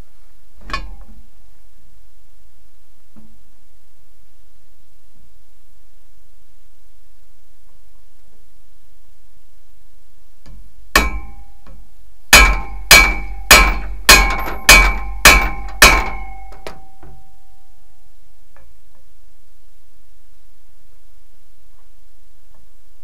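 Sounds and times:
hammer blows on steel: 0:10.9 - 0:17.6.

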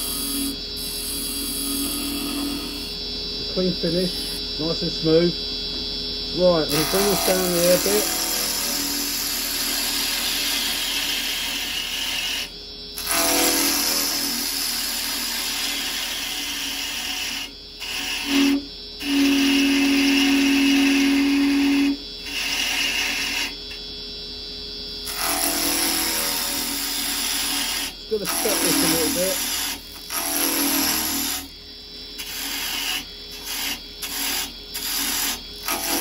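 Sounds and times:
chisel cutting wood on lathe: 0:06.7 - 0:23.5, 0:25.1 - 0:31.5, 0:32.2 - 0:36.0.

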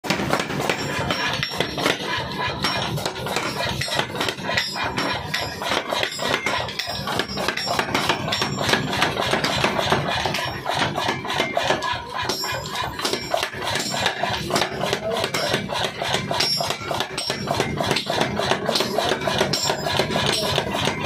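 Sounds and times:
power hammer striking steel: 0:00.0 - 0:21.0
machine drive running: 0:00.1 - 0:21.0.

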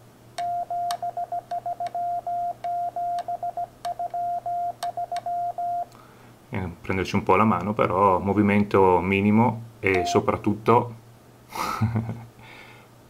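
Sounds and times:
morse code beeps: 0:00.4 - 0:05.9, 0:10.0 - 0:10.3.

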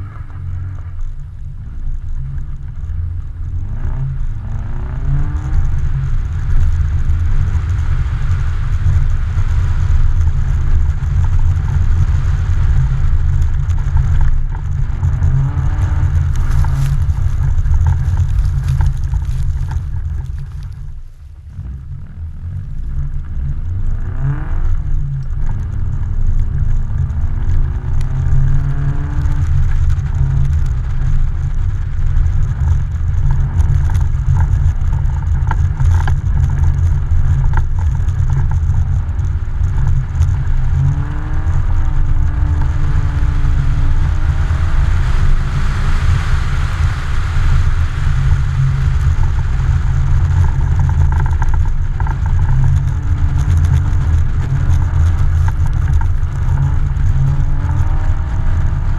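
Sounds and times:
car engine revving: 0:00.0 - 0:58.9
heavy low rumble: 0:00.0 - 0:58.9.

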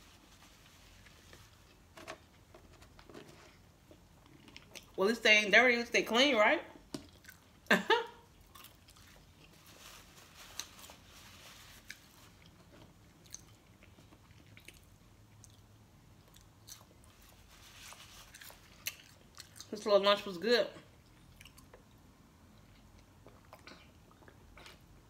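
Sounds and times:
person chewing food: 0:03.6 - 0:05.0, 0:07.0 - 0:09.8, 0:11.8 - 0:19.7, 0:20.9 - 0:25.0.

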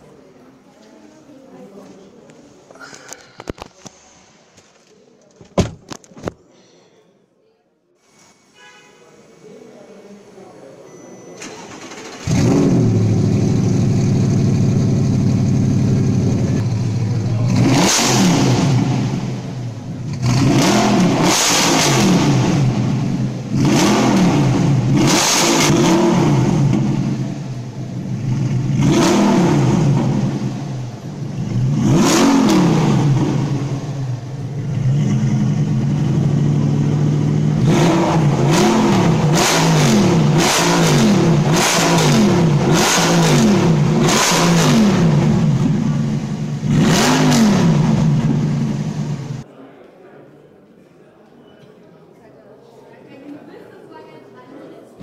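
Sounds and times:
loud car engine revving: 0:11.8 - 0:49.4.

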